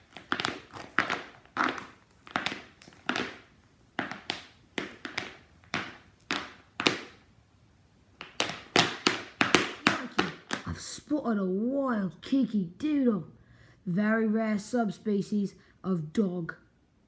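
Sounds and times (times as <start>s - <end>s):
metal cleats clacking on concrete: 0.0s - 7.3s, 8.2s - 10.7s.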